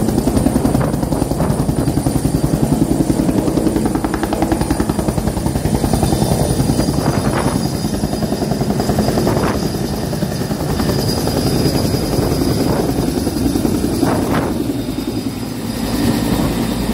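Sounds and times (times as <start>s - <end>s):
helicopter rotor beat: 0.0s - 16.9s
turbine whine: 0.0s - 16.9s.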